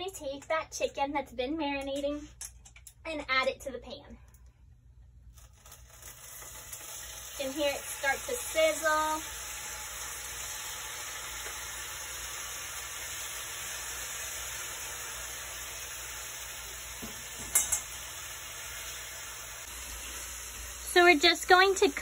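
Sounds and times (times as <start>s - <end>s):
chicken sizzling in oil: 5.4s - 22.0s.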